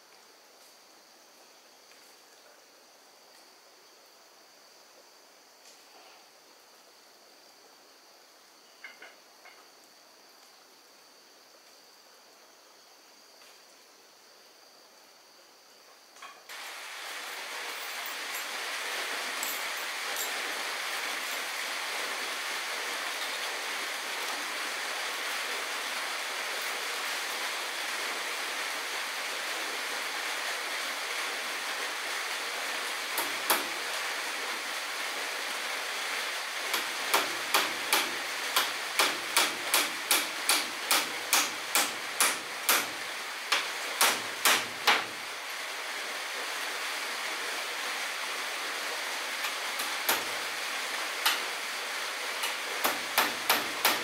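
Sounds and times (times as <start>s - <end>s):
steady hiss: 0.0s - 54.0s
hammer driving nails into wood: 36.7s - 45.1s, 49.8s - 50.3s, 52.4s - 54.0s.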